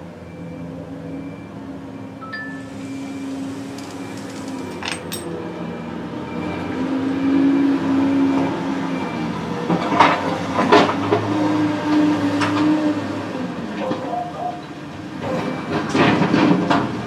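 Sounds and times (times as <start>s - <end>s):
excavator diesel engine under load: 0.1s - 13.9s
sharp metal clanks: 3.8s - 5.4s.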